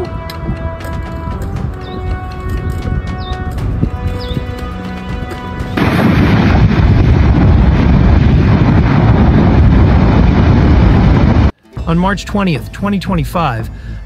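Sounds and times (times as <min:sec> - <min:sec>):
background music with held notes: 0:00.0 - 0:06.3, 0:11.5 - 0:14.0
lava fountain rushing rumble: 0:05.8 - 0:11.5.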